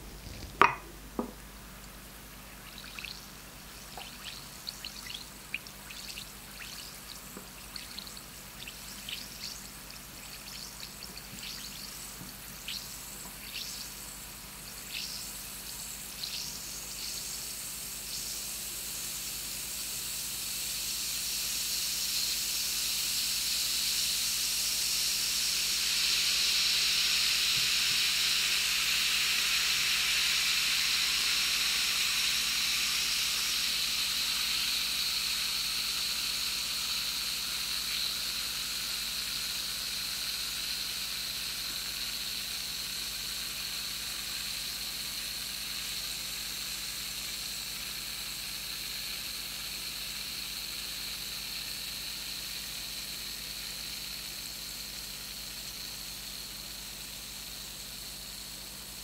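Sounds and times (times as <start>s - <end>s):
tablet fizzing in water: 2.5s - 34.2s.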